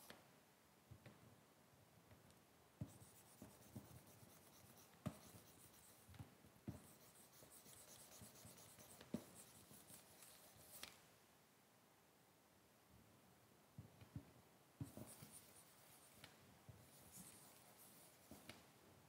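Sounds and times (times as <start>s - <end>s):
stylus scratching drawing tablet: 2.8s - 6.1s, 6.7s - 10.8s, 16.8s - 18.5s.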